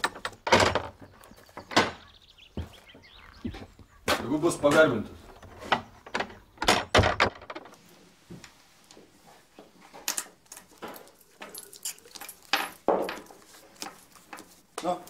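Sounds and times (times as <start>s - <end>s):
faint clinks and knocks: 9.6s - 14.6s.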